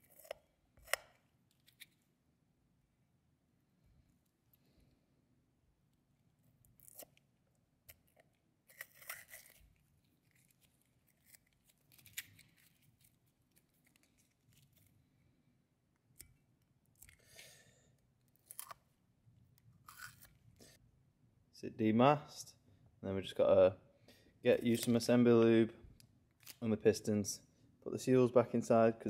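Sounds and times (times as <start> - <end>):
masking tape tearing and scraping: 7.9 - 14.9, 19.8 - 20.4.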